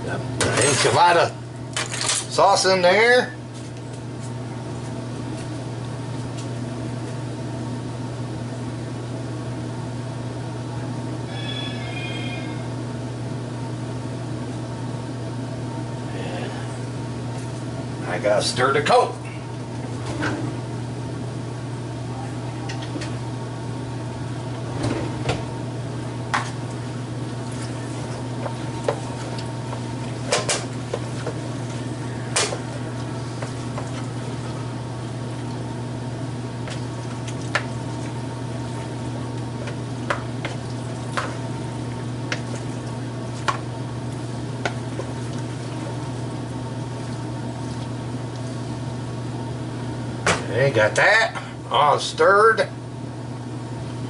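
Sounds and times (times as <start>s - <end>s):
steady low hum: 0.0s - 54.0s
chicken stirred in plastic bowl: 36.6s - 48.6s.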